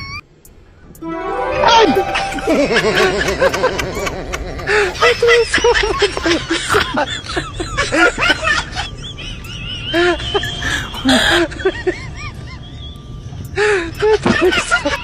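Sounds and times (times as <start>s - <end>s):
people laughing and calling out: 1.1s - 7.2s.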